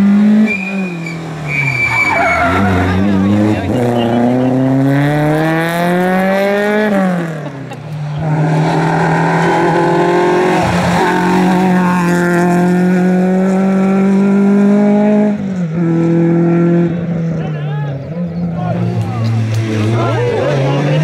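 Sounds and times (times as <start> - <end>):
rally car engines revving: 0.0 - 21.0.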